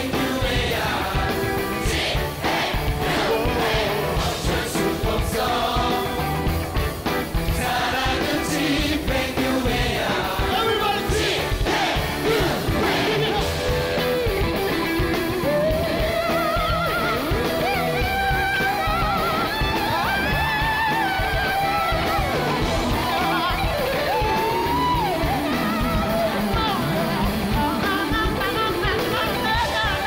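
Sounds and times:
bass guitar: 0.0s - 30.0s
drums: 0.0s - 30.0s
electric guitar solo: 13.4s - 30.0s.

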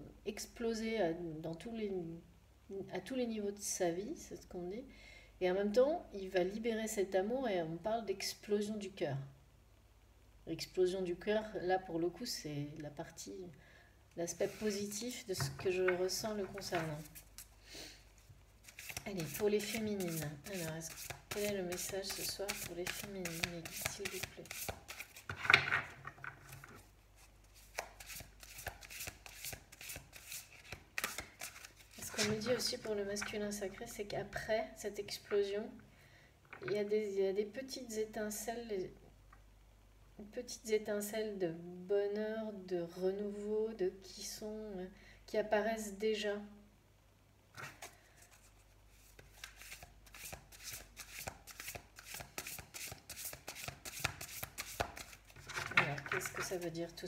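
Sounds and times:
cards being shuffled: 15.8s - 17.6s, 18.2s - 33.4s, 47.6s - 56.7s.

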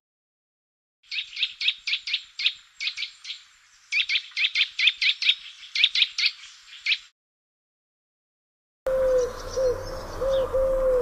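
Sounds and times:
bird piping whistled notes: 1.1s - 7.1s, 8.9s - 11.0s.

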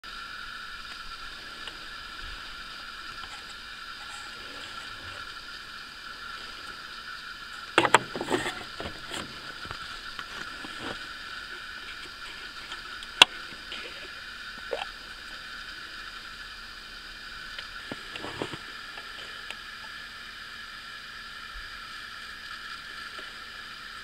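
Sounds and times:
steady hiss: 0.0s - 24.0s
plastic clatter: 7.6s - 11.1s, 17.9s - 18.6s.

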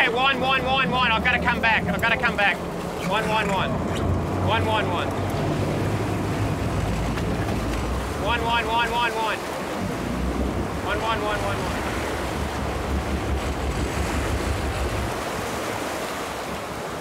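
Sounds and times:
wind buffeting microphone: 0.0s - 8.4s, 9.5s - 17.0s
water rushing past boat hull: 0.0s - 17.0s
low rumble: 0.6s - 8.5s, 9.6s - 15.8s.

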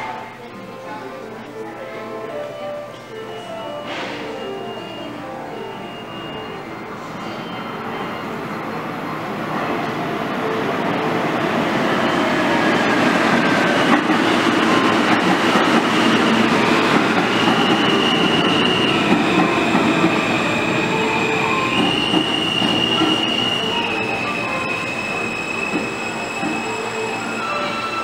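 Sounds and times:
subway train rolling rumble: 0.0s - 28.0s
high-pitched brake squealing: 3.1s - 8.6s, 15.6s - 28.0s.

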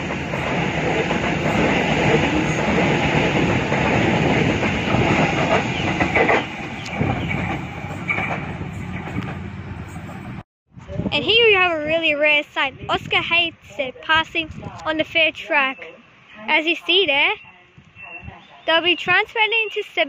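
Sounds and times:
wheels clacking over rail joints: 0.0s - 10.4s
train wheels rumbling on rails: 0.0s - 13.5s.

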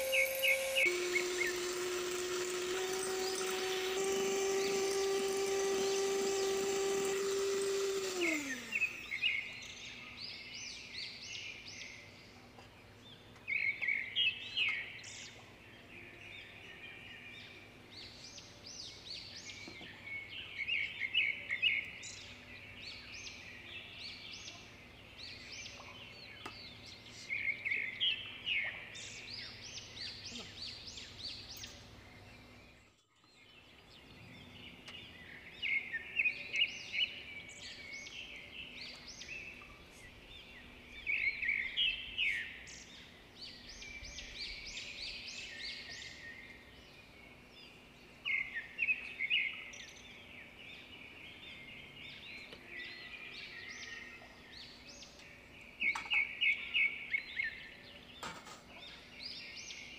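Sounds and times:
electric hand mixer motor: 0.0s - 9.7s
birds chirping: 0.0s - 59.9s.

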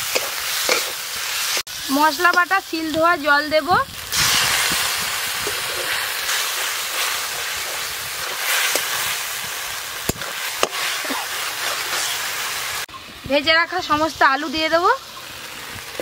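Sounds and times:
spatula stirring in pan: 0.0s - 1.6s, 4.2s - 12.4s
loud sizzling in wok: 0.0s - 16.0s.

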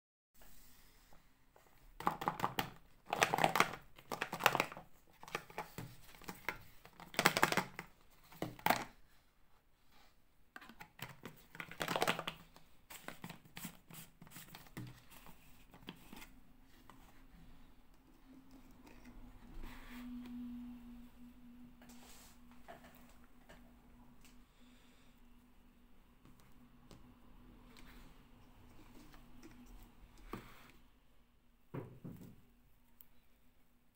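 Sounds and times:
plastic container crinkling: 2.0s - 9.0s, 10.6s - 15.0s.

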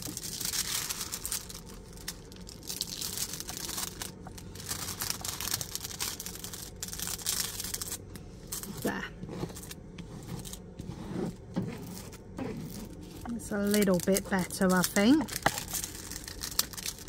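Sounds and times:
plastic film crinkling: 0.0s - 17.0s
plastic scraper rubbing plastic film: 4.6s - 17.0s.

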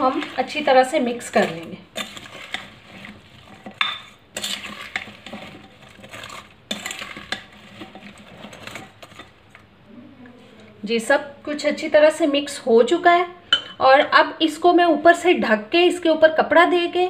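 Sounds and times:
spoon scraping glass bowl: 0.0s - 9.4s.

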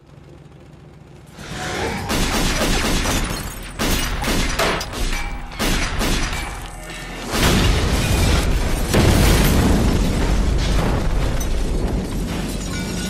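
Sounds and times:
glass shattering: 3.1s - 9.8s, 11.2s - 13.0s.

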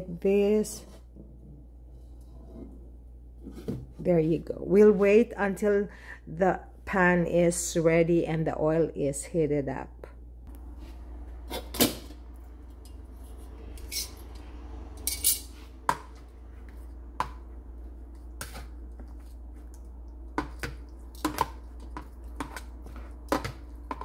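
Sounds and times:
steady low hum: 0.0s - 24.0s
metal tongs clacking: 15.0s - 15.5s.

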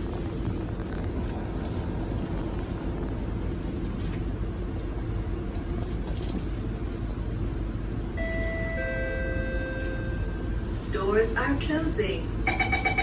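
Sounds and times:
train car rumble and hum: 0.0s - 13.0s
two-note door chime: 8.2s - 10.4s.

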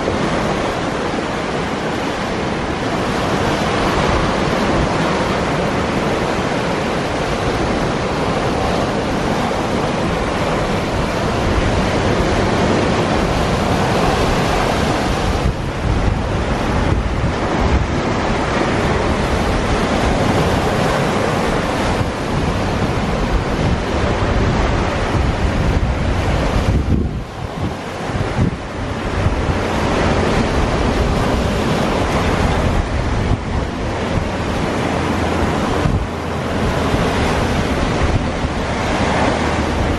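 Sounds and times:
waves and choppy water: 0.0s - 39.9s
wind buffeting microphone: 0.0s - 39.9s.

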